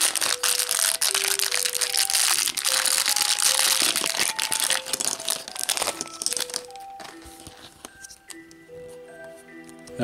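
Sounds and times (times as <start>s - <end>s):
plastic bag crinkling: 0.0s - 7.8s
light background music: 0.0s - 10.0s.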